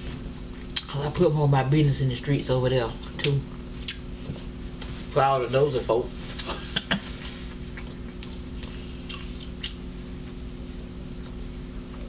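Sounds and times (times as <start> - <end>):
low hum: 0.0 - 12.0
chewing: 3.0 - 4.5, 7.7 - 9.8.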